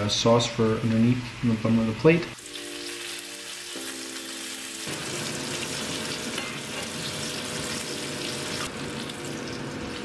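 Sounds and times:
butter sizzling in a hot pan: 0:02.4 - 0:10.0.

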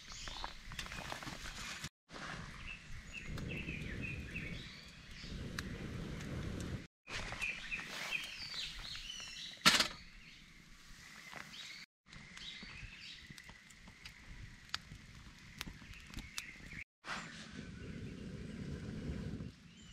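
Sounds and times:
birds chirping: 0:07.3 - 0:14.5.

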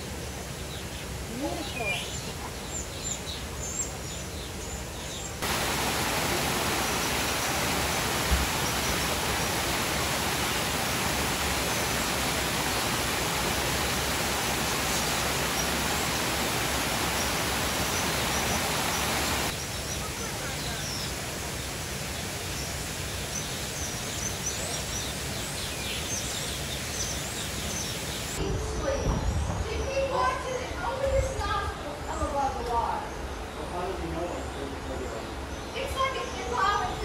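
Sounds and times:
waterfall rushing: 0:05.4 - 0:28.4.

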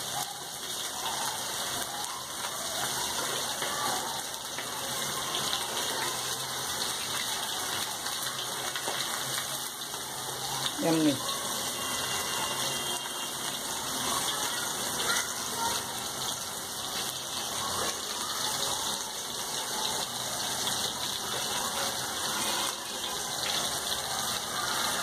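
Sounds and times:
fish sizzling in hot oil: 0:00.0 - 0:25.0.

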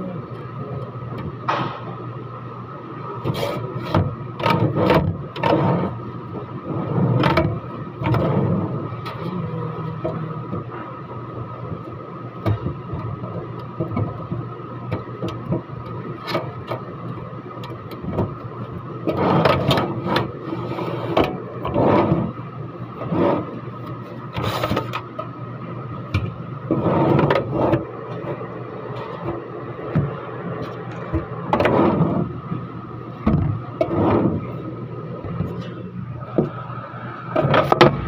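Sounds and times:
steady hum: 0:00.0 - 0:38.0
drawer scraping on metal runners: 0:19.0 - 0:22.4, 0:23.0 - 0:23.6, 0:26.7 - 0:30.1, 0:30.7 - 0:32.4, 0:33.3 - 0:34.6.

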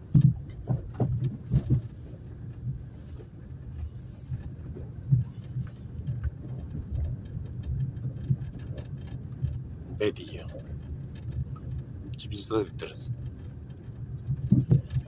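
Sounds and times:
car engine and road drone: 0:00.0 - 0:15.0
knocks and rattles from bumps: 0:00.0 - 0:15.0.

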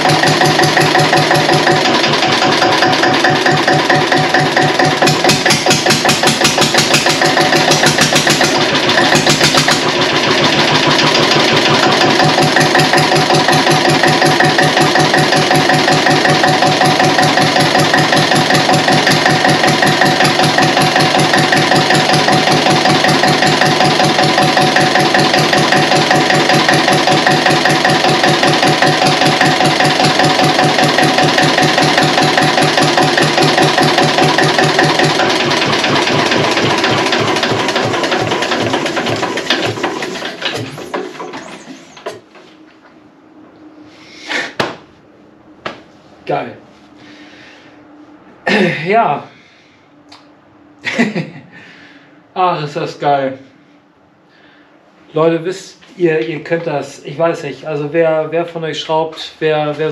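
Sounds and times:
diesel engine idling: 0:00.0 - 0:42.3.

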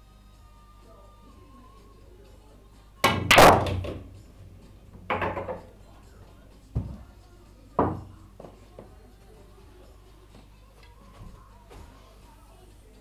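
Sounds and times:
pool balls clattering: 0:03.0 - 0:05.8
cue striking ball click: 0:05.0 - 0:05.7.

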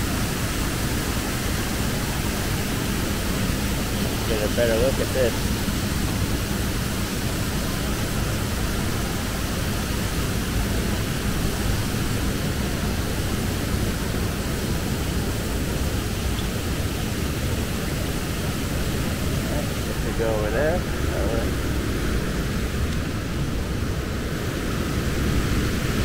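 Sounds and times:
water rushing over a drop: 0:00.0 - 0:26.0.

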